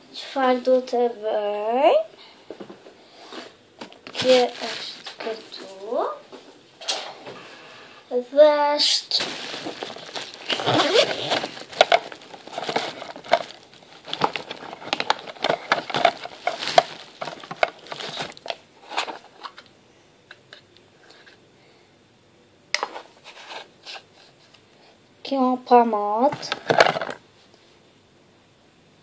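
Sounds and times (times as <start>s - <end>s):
handbag contents rustling: 4.1s - 6.0s, 9.1s - 19.3s.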